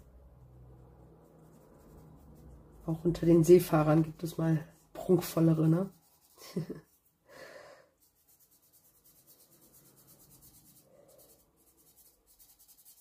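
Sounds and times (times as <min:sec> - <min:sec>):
pen scratching on paper: 0:08.0 - 0:13.0.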